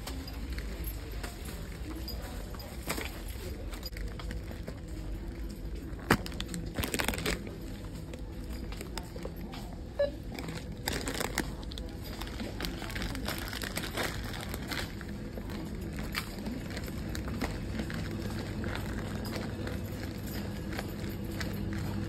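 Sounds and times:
low background hum: 0.0s - 22.0s
plastic packet crinkling: 5.3s - 7.8s, 10.3s - 20.6s.

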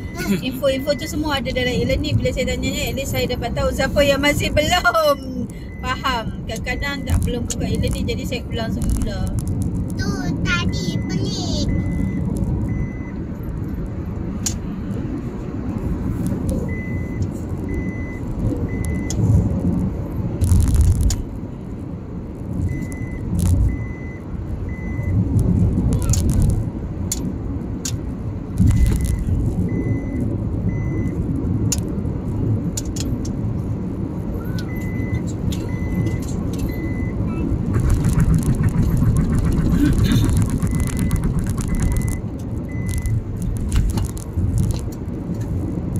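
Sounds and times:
car warning chime beeping: 0.0s - 1.8s, 4.4s - 8.7s, 10.5s - 13.3s, 40.3s - 43.3s
car road noise from inside: 0.0s - 45.9s
low rumbles: 0.0s - 45.9s.

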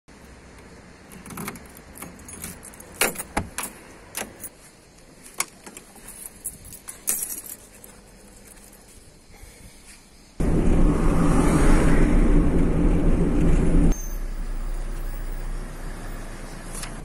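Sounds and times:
keys jangling: 1.1s - 4.5s, 5.6s - 9.0s.

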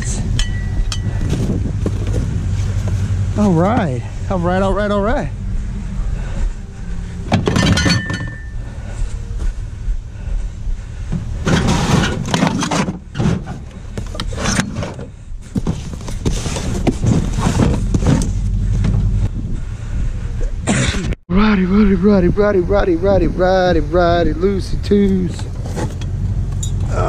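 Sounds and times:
steady low rumble: 0.0s - 27.0s
items clattering and scraping: 7.2s - 8.6s, 11.1s - 19.2s.

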